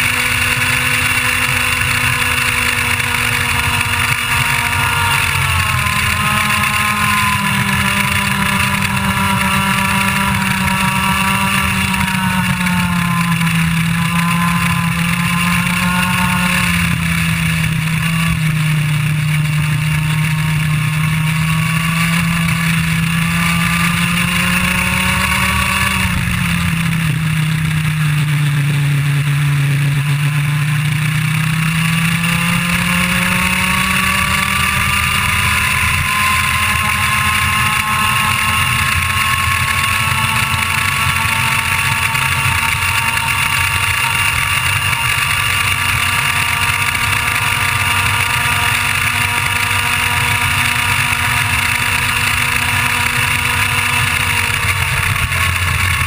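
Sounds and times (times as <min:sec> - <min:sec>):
another kart engine: 0:00.0 - 0:56.0
kart engine revving: 0:00.0 - 0:56.0.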